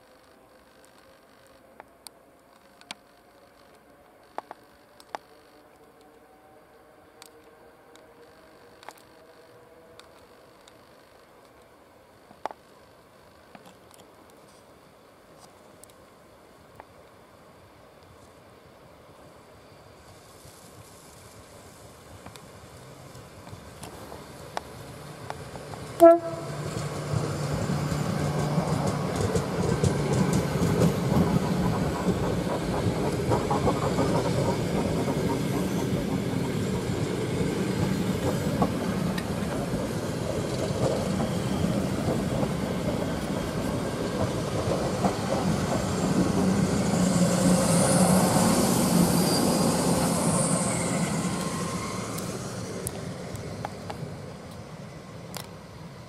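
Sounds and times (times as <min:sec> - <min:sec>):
train rumble: 0:18.1 - 0:56.0
train wheels clattering over rails: 0:23.5 - 0:48.5
train horn blast: 0:26.0 - 0:26.7
high brake hiss: 0:45.9 - 0:53.8.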